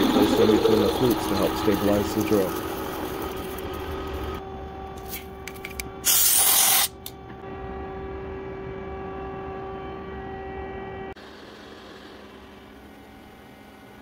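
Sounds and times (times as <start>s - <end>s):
milling machine humming: 0.0s - 6.2s.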